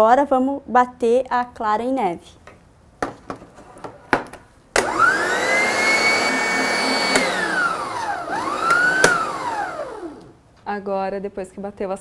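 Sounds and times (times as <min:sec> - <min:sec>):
stand mixer motor whining: 0:04.8 - 0:10.4.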